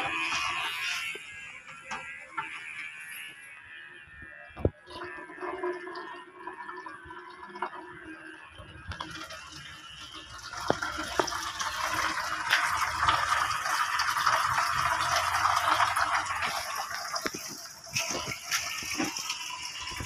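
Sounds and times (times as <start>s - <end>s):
electric pet clippers buzzing: 0.0s - 5.2s, 9.8s - 11.6s, 14.5s - 20.0s.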